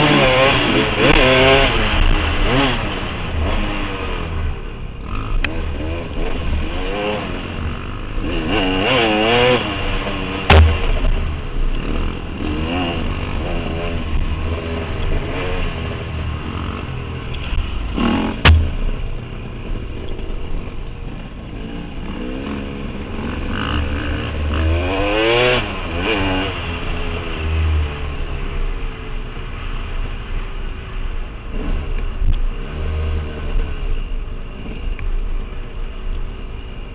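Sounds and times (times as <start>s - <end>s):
dirt bike engine revving: 0.0s - 4.4s, 5.0s - 19.3s, 21.6s - 28.1s
sharp knocks: 10.5s - 11.2s, 18.3s - 18.9s.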